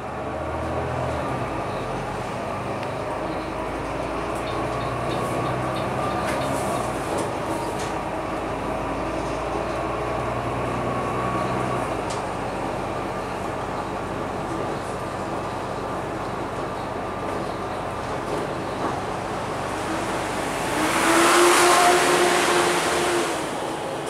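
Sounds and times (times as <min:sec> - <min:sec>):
bus diesel engine running: 0:00.0 - 0:24.0.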